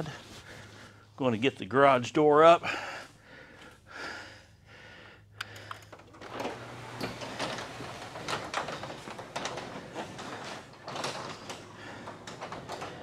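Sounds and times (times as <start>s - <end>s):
garage door clicks: 5.4s - 13.0s
garage door rolling and rattling: 5.9s - 13.0s.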